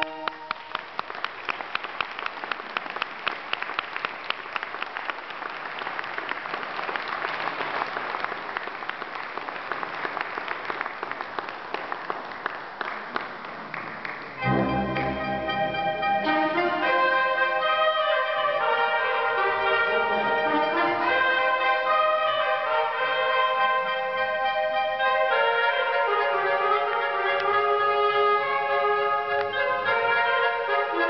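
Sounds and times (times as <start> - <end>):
audience applauding: 0.0 - 15.1
concert band playing chords: 14.4 - 17.7.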